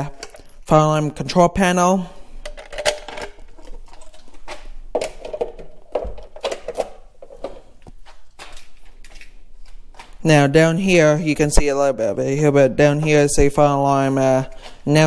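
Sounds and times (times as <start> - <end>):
wires and clips clicking and rattling: 0.0 - 0.7, 2.4 - 10.2.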